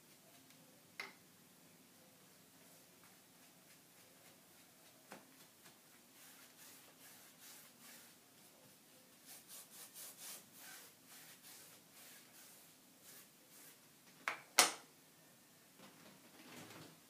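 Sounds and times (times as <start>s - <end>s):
brush rubbing on cloth: 3.1s - 13.8s.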